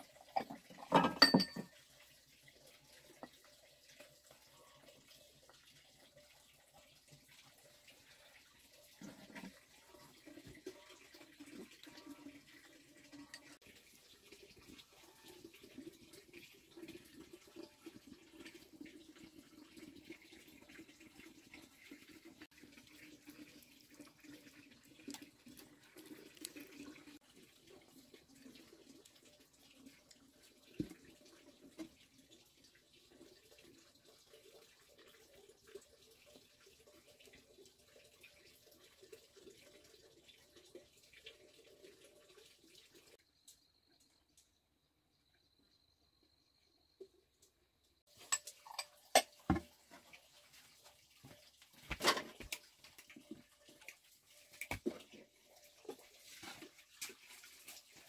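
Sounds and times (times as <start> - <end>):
faint water trickling: 0.0 - 58.0
ladle clinking against bowl: 0.4 - 1.7.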